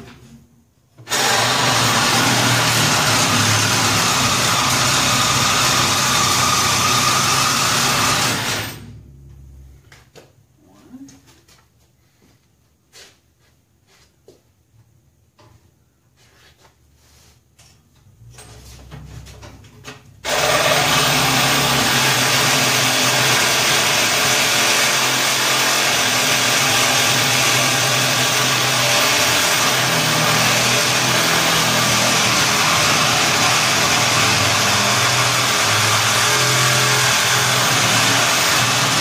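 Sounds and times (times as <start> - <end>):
power cutting tool running: 1.1 - 8.9, 20.2 - 39.0.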